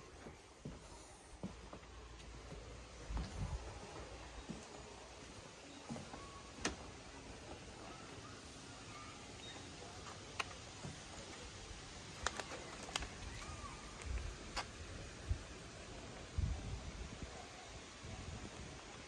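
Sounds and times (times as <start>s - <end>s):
footsteps on wooden deck: 0.0s - 7.7s.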